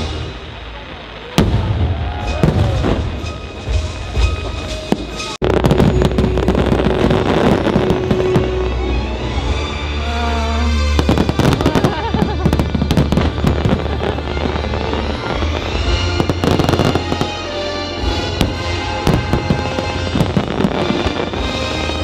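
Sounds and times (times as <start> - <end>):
fireworks bursting and crackling: 0.0 - 22.0
music playing: 2.2 - 22.0.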